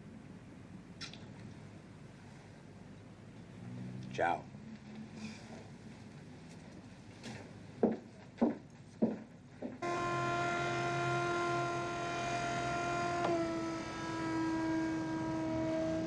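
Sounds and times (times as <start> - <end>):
electric motor whining: 9.8 - 16.0.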